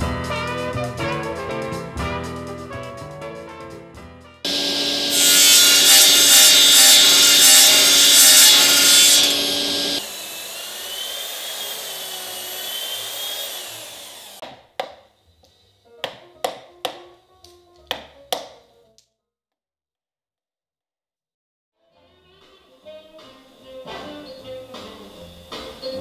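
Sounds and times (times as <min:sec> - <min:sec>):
power saw cutting wood: 0:04.5 - 0:14.4
chisel knocking into wood: 0:16.0 - 0:17.1.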